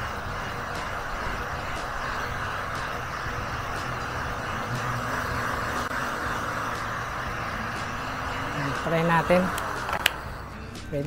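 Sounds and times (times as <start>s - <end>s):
heat gun fan hissing: 0.0s - 11.0s
low hum: 0.0s - 11.0s.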